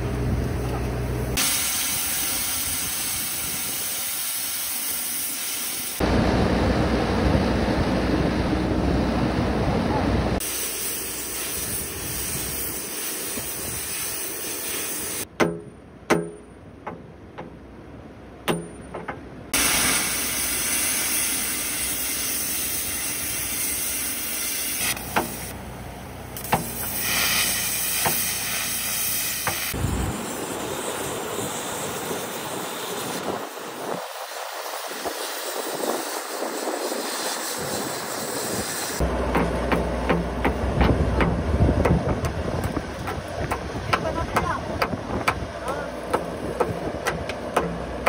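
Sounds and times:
metal-cutting torch hissing: 1.3s - 6.1s, 10.4s - 15.3s, 19.6s - 25.6s, 26.3s - 39.1s.

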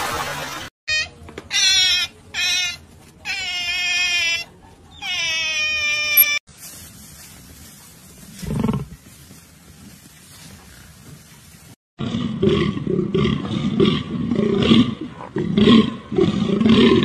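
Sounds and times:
otters squealing: 0.9s - 6.4s.

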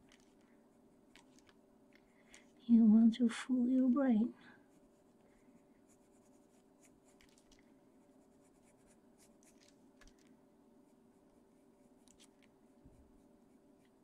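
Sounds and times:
pencil scratching on paper: 5.8s - 9.7s.

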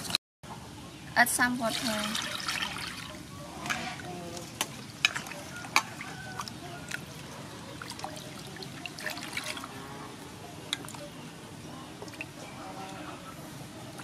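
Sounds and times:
water sloshing in a steel bowl: 1.4s - 11.2s, 12.0s - 13.3s.

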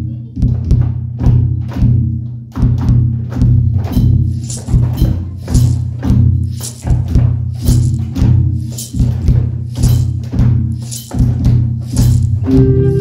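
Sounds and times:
percussive beat: 0.0s - 13.0s
low bass line: 12.2s - 13.0s
sustained melody: 12.4s - 13.0s.

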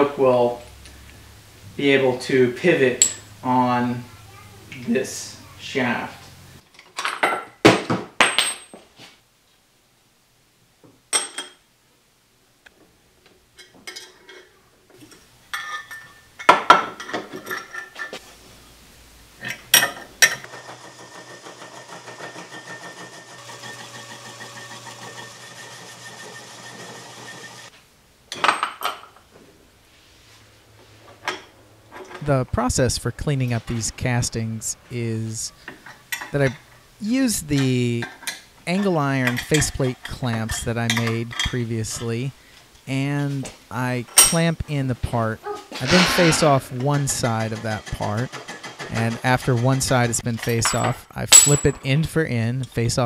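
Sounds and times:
metal clamps clinking: 3.0s - 3.3s, 13.6s - 18.2s, 35.6s - 36.8s, 37.6s - 42.1s, 44.1s - 44.5s, 48.9s - 51.9s
machine hum: 20.1s - 27.7s.

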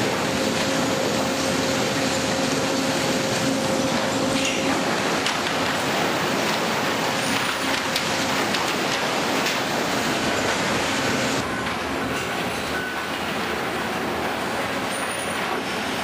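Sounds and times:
mechanical clatter of machinery: 3.3s - 16.0s.

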